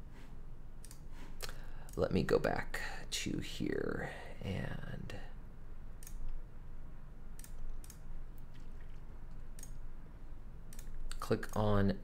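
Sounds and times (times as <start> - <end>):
low room hum: 0.0 - 12.0
computer mouse clicks: 0.8 - 2.0, 6.0 - 6.4, 7.4 - 9.8, 10.7 - 11.7.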